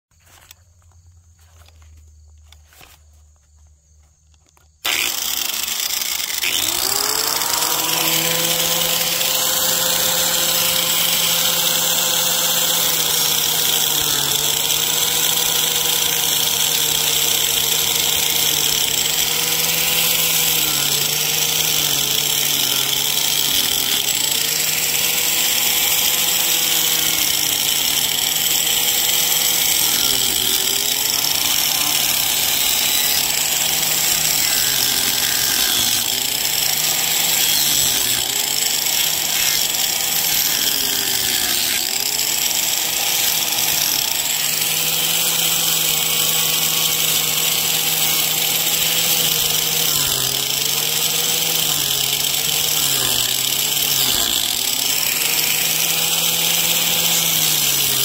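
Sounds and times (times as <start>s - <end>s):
angle grinder cutting wood: 4.8s - 58.0s.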